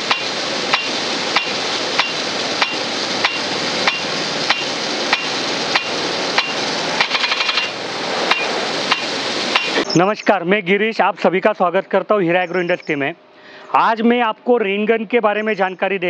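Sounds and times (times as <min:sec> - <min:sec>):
sprinkler arm ticking: 0:00.0 - 0:10.1
hiss of spraying water: 0:00.0 - 0:10.2
rattle of clicks: 0:00.1 - 0:09.8.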